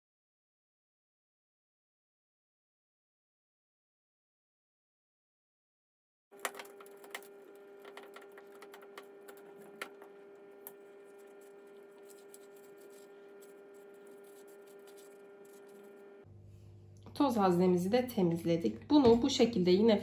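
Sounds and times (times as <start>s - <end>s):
cloth wiping plastic: 6.4s - 16.2s
steady low hum: 6.4s - 17.8s.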